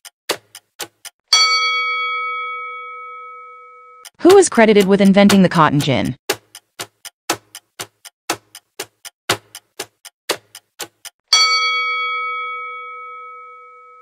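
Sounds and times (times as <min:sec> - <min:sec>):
clock ticking: 0:00.0 - 0:01.7, 0:04.1 - 0:12.4
bell chime: 0:01.3 - 0:04.0, 0:11.3 - 0:14.0.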